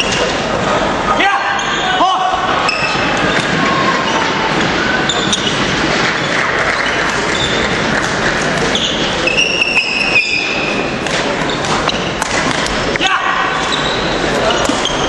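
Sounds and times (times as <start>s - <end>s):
crowd chatter: 0.0s - 15.0s
shoes squeaking on floor: 2.6s - 12.2s, 13.6s - 15.0s
racket striking shuttlecock: 11.0s - 12.8s.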